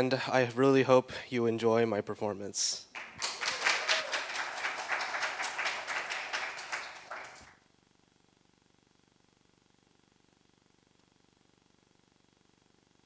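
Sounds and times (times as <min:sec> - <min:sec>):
audience applauding: 0:02.9 - 0:07.5.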